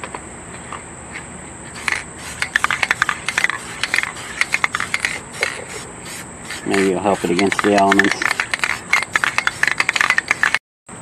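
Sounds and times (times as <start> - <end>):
aerosol spray bursts: 1.8 - 10.6.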